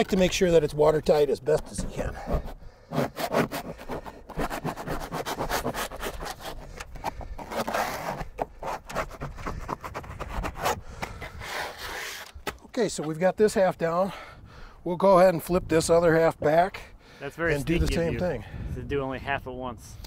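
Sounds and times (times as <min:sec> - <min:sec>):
plastic spreader scraping vinyl: 0:01.7 - 0:12.4.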